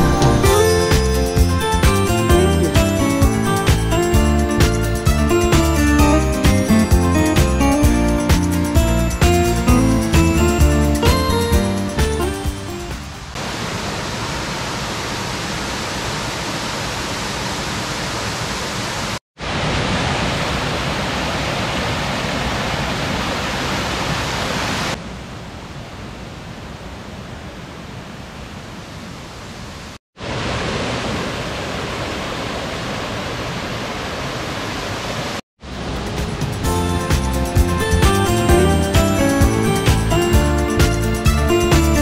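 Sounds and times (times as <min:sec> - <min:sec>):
water rushing over rocks: 0:13.1 - 0:25.0, 0:30.2 - 0:36.3.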